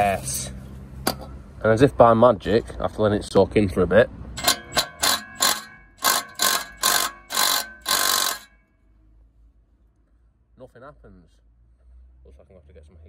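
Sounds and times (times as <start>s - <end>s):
impact wrench hammering: 4.4s - 8.7s.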